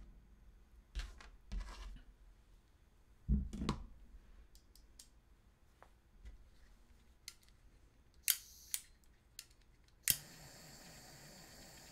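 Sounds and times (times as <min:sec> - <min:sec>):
scrapes and rustles on workbench: 0:01.0 - 0:02.1.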